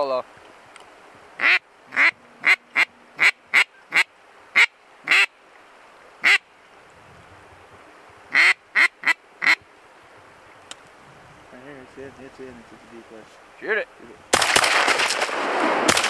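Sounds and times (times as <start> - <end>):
duck quacking: 1.4 - 5.3, 6.2 - 6.4, 8.3 - 9.6.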